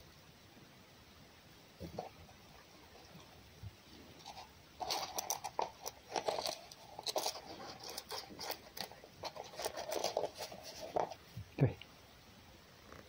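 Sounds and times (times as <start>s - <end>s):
fox chewing and crunching food: 1.8s - 11.4s.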